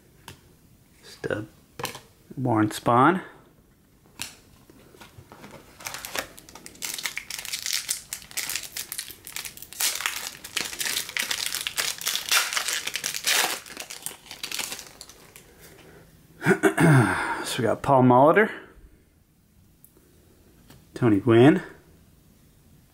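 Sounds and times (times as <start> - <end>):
wrapper crinkling and tearing: 5.5 - 15.5.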